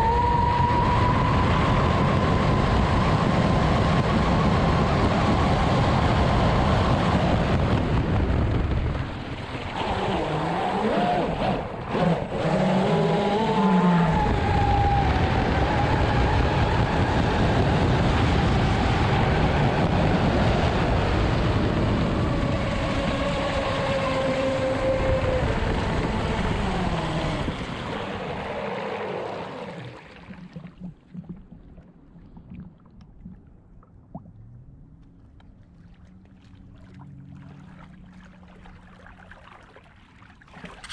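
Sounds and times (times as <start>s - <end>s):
hull rushing on water: 0.0s - 40.9s
small water splashes: 22.8s - 40.9s.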